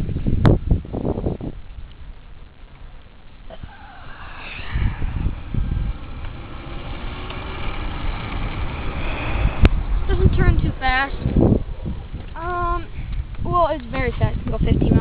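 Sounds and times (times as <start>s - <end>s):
electric scooter motor approaching: 3.6s - 13.4s.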